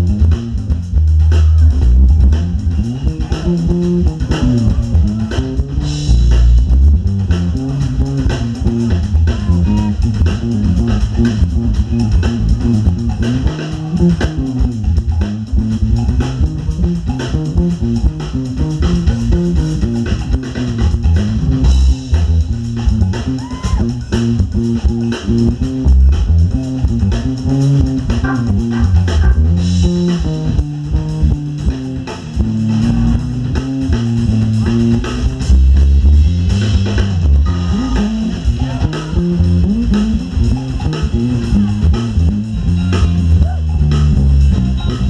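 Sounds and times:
electric bass line: 0.0 - 45.0
guitar: 0.0 - 45.0
live band playing: 0.0 - 45.0.

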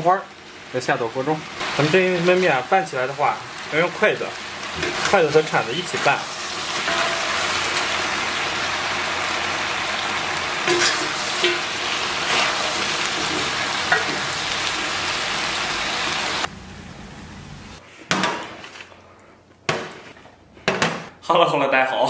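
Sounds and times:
noodles sizzling in a wok: 0.0 - 16.5
spatula scraping a wok: 5.9 - 8.2, 10.6 - 14.2.

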